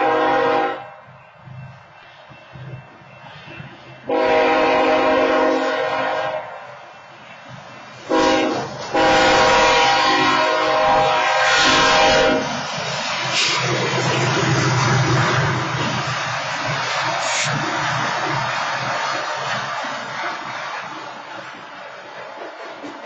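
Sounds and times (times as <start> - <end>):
locomotive air horn blasts: 0.0 - 1.0, 4.1 - 6.6, 8.1 - 12.5
train rumble: 0.0 - 23.0.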